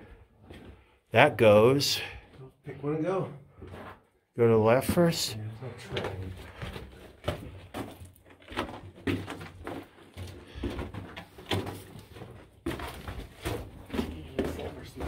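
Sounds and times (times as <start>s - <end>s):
echoing footsteps on dirt and rock: 0.1s - 0.9s, 3.5s - 15.0s.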